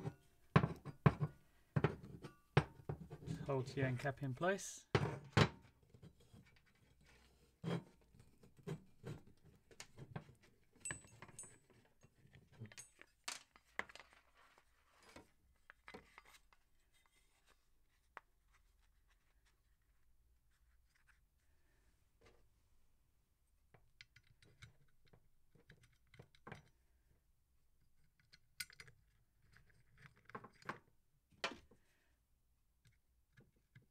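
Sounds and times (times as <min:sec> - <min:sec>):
plastic and metal parts handled: 0:05.9 - 0:18.1.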